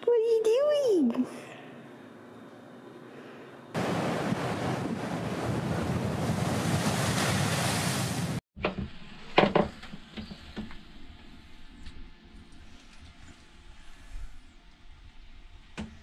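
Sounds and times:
waves breaking on rocks: 3.8s - 8.4s
wind on microphone: 3.8s - 8.4s.

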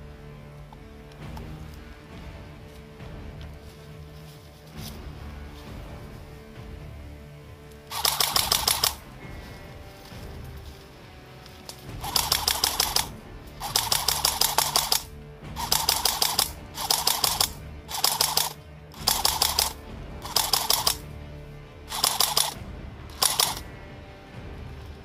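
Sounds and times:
airsoft rifle bursts: 7.9s - 9.1s, 11.7s - 21.0s, 21.9s - 23.7s.

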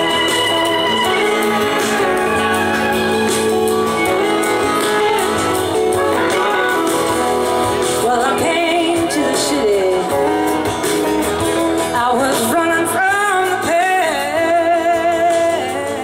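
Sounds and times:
drums and cymbals: 0.0s - 16.0s
electric guitar: 0.0s - 16.0s
woman singing: 3.9s - 10.7s, 11.9s - 16.0s.

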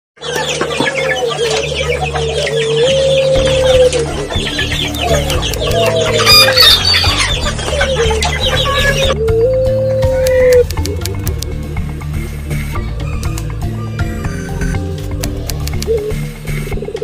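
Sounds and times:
chickens clucking: 0.2s - 17.0s
low musical accompaniment: 0.2s - 17.0s
held stepping melody line: 3.4s - 9.2s, 10.2s - 13.8s
rooster crowing: 5.1s - 10.6s, 12.8s - 15.0s.

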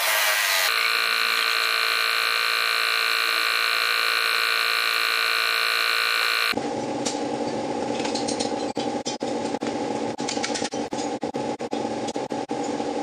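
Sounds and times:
machine hum whine: 0.5s - 6.7s.

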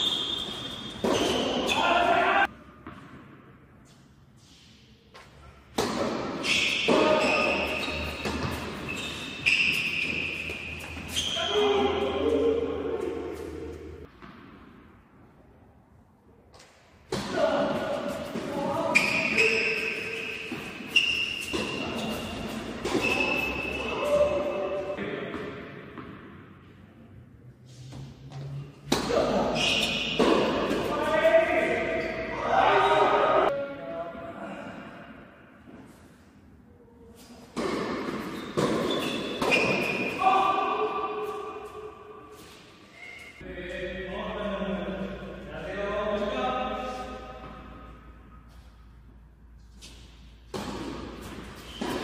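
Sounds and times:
tennis ball hit by racket: 30.1s - 30.9s, 37.5s - 40.1s
tennis ball hits echoing: 30.1s - 30.9s.

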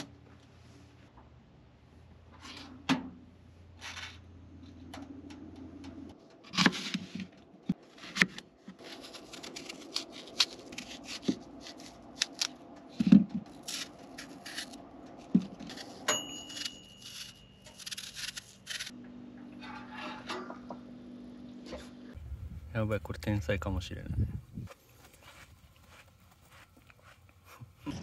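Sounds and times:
knife cutting apple: 8.0s - 12.6s, 13.3s - 19.0s
low hum: 8.8s - 28.0s
knife blade scraping: 13.6s - 14.8s, 15.6s - 19.0s.

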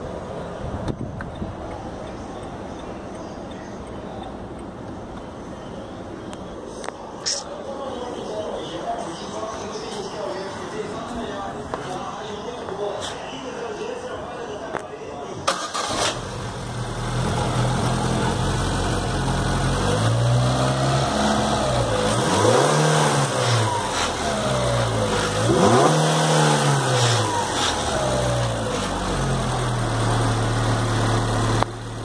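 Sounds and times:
car engine idling and revving: 15.5s - 32.0s.

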